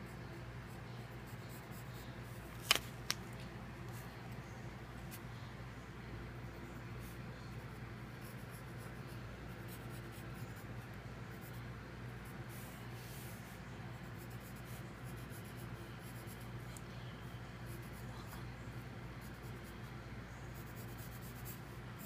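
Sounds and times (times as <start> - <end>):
pencil scratching on paper: 7.0 - 16.5, 17.7 - 18.5, 19.2 - 19.8, 20.6 - 21.6.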